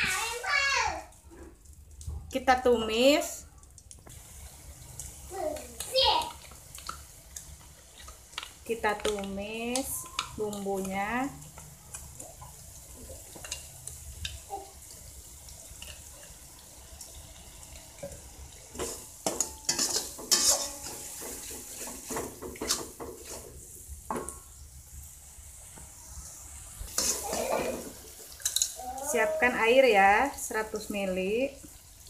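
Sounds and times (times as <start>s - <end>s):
paste sizzling in hot oil: 0.0s - 1.7s, 4.0s - 32.0s
metal spatula scraping a wok: 18.8s - 23.6s, 26.9s - 28.7s.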